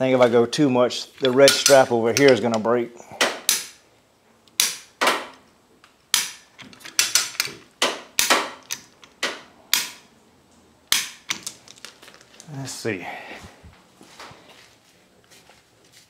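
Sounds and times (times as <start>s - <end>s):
ratchet lever clacking: 1.2s - 2.6s, 6.2s - 7.6s.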